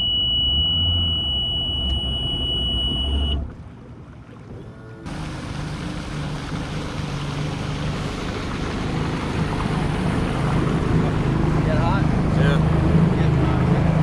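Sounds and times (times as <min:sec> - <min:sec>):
outboard motor running: 0:00.0 - 0:14.0
wind and water rushing: 0:03.4 - 0:14.0.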